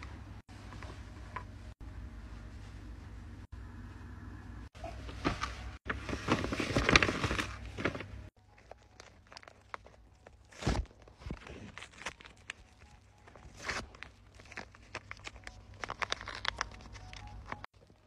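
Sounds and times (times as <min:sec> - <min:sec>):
paper crinkling and rustling: 0:05.1 - 0:18.0
paper unwrapping clicks: 0:05.8 - 0:18.0.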